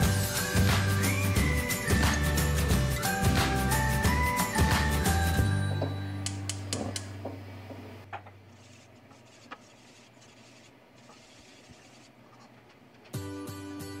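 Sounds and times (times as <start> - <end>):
background music: 0.0 - 7.1, 13.2 - 14.0.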